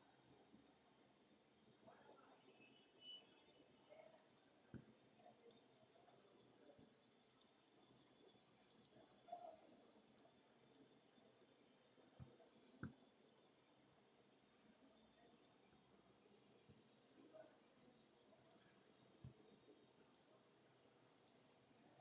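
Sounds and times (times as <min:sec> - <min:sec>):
faint high whine: 0:01.3 - 0:11.8, 0:12.5 - 0:22.0
computer clicks: 0:07.3 - 0:07.6, 0:20.0 - 0:20.6.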